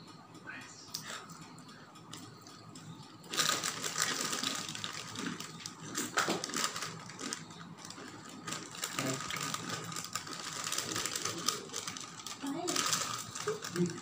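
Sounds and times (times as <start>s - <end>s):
plastic snack packets crinkling: 3.3s - 14.0s.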